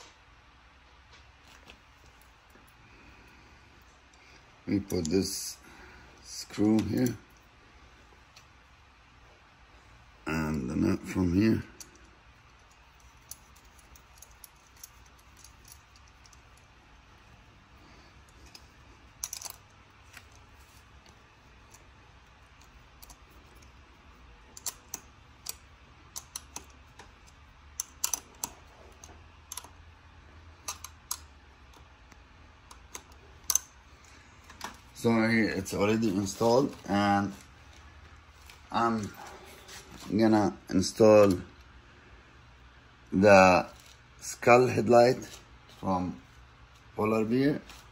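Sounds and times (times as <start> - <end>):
screw and nut clicking on metal: 11.8 - 16.7, 18.2 - 29.8, 30.6 - 31.8.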